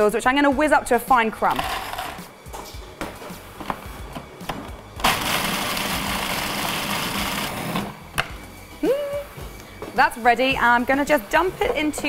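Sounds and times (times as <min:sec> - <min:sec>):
food processor motor running: 0:05.0 - 0:08.0.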